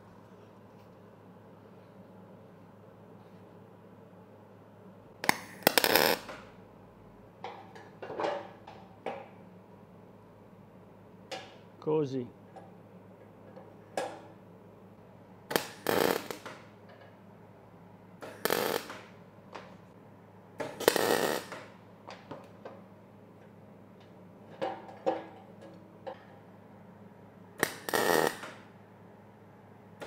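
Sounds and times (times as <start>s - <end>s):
steady low hum: 0.0s - 30.0s
welding arc crackling: 5.3s - 6.4s, 15.5s - 16.5s, 18.2s - 19.0s, 20.8s - 21.6s, 27.6s - 28.6s.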